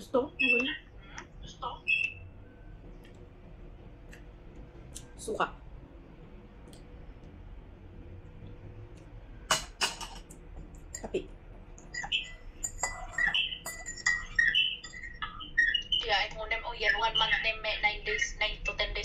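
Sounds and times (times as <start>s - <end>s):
spoon knocking on mug: 9.5s - 10.2s, 11.9s - 15.0s
teaspoon clinking in a mug: 12.0s - 15.1s.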